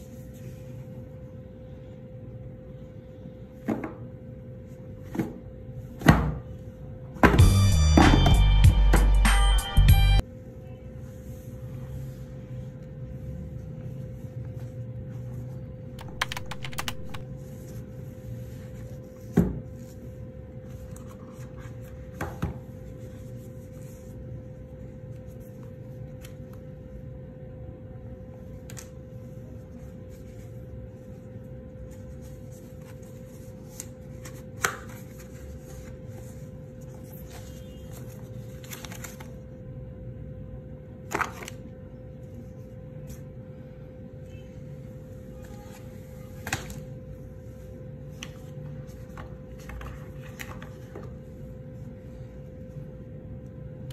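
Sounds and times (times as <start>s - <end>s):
steady hum: 6.6s - 41.0s
cardboard and paper rustling: 31.8s - 39.5s, 48.1s - 51.4s.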